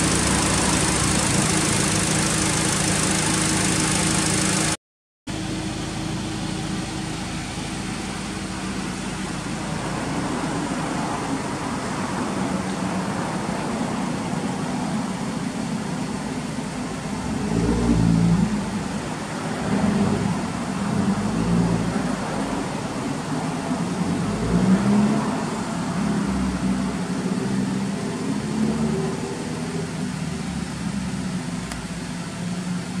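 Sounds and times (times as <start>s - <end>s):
car engine idling: 0.0s - 17.5s, 29.3s - 33.0s.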